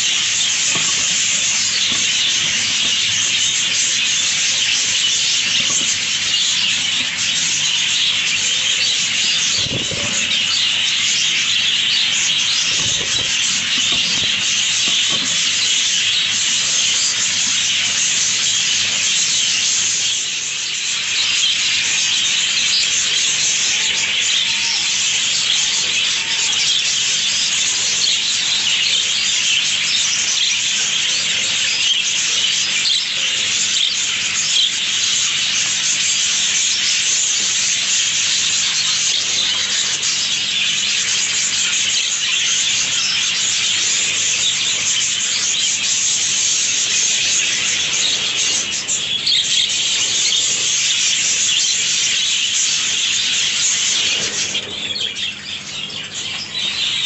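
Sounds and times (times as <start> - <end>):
budgerigars twittering: 0.0 - 57.0.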